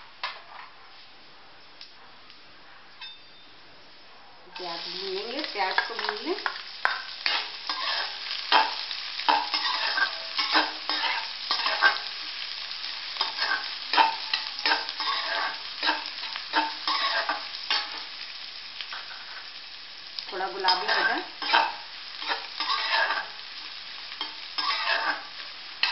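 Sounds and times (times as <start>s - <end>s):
onions sizzling in oil: 3.1s - 25.9s
metal spatula scraping pan: 6.8s - 12.1s, 13.2s - 18.0s, 20.6s - 23.4s, 24.2s - 25.9s.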